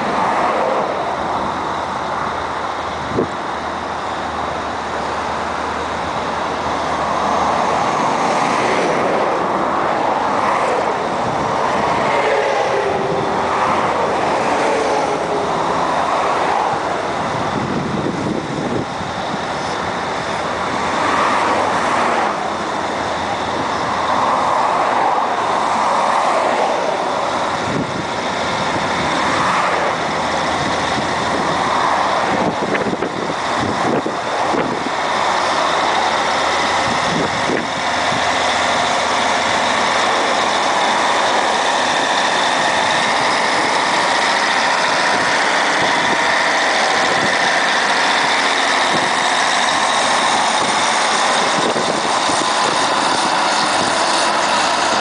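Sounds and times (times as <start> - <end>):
grader diesel engine running: 0.0 - 55.0
motorway traffic passing: 0.0 - 55.0
grader spreading gravel: 26.7 - 55.0.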